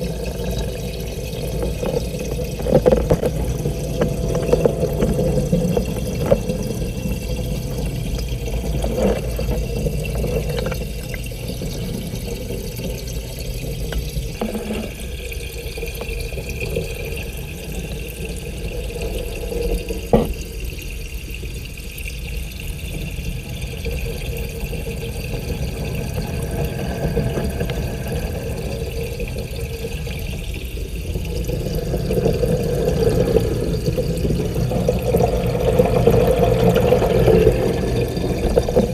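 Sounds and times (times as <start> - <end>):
muffled aquarium water rushing: 0.0 - 38.9.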